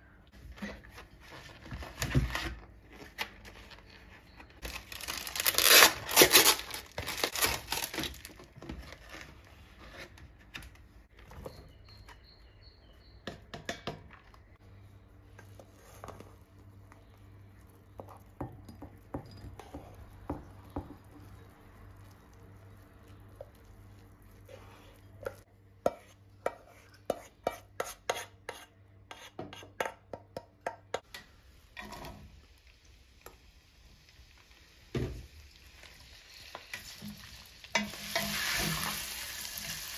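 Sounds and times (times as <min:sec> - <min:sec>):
plastic film crinkling and tearing: 0:04.6 - 0:09.5.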